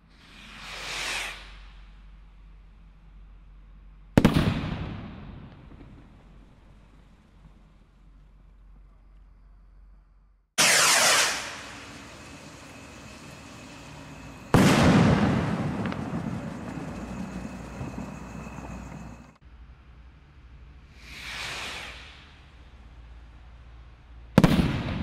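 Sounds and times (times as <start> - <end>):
firework rocket whoosh: 0.0 - 2.1, 10.6 - 19.4, 20.9 - 22.8
firework shell bang: 13.6 - 18.0.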